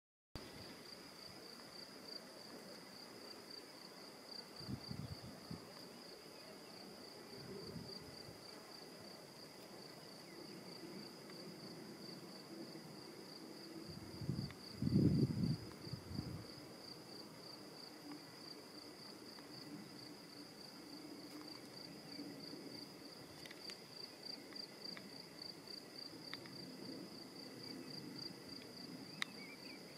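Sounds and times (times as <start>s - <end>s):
microphone rumbles: 14.0s - 16.5s.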